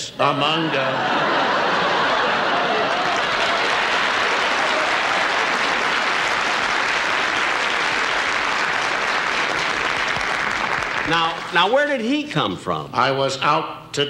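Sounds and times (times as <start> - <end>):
audience applauding: 1.0 - 11.6.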